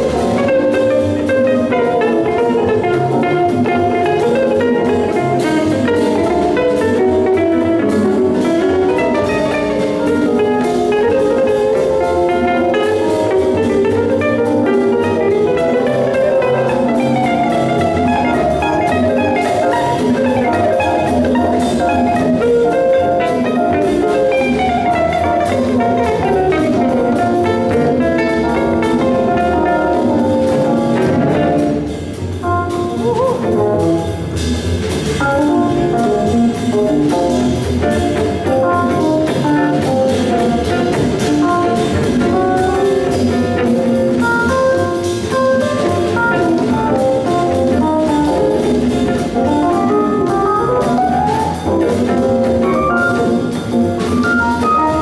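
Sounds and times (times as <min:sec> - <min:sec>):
jazz band playing: 0:00.0 - 0:55.0.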